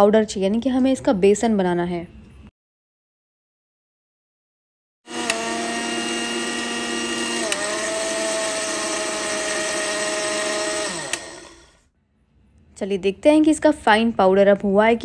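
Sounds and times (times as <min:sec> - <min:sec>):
mixer grinder motor running: 0:05.1 - 0:11.8
motor winding down: 0:05.1 - 0:11.8.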